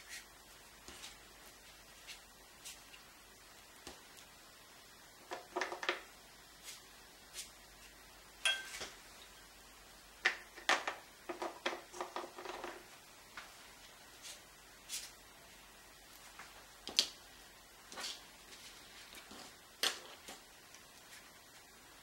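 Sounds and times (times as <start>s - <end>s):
painting tools clinking on dishware: 8.4s - 8.9s.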